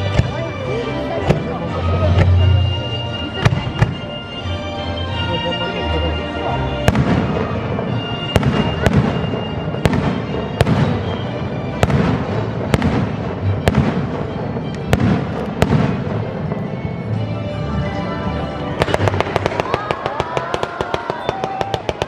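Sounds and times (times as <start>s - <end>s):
firework bangs: 0.0s - 4.1s, 6.8s - 16.8s, 18.8s - 22.0s
firework crackling: 6.8s - 17.2s, 18.8s - 22.0s.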